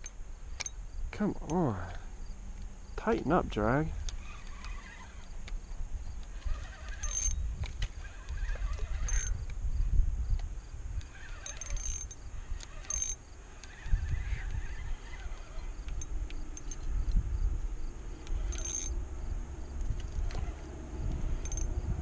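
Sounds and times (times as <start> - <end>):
low steady rumble: 0.0 - 22.0
fishing reel bursts: 4.0 - 5.4, 6.1 - 7.4, 8.0 - 9.5, 11.0 - 16.9, 18.2 - 19.0.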